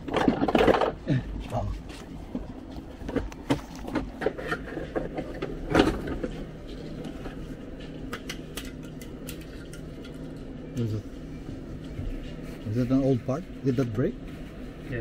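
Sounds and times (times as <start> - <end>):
parts clicking and knocking: 0.0 - 1.1, 3.0 - 10.3
steady low hum: 0.0 - 15.0.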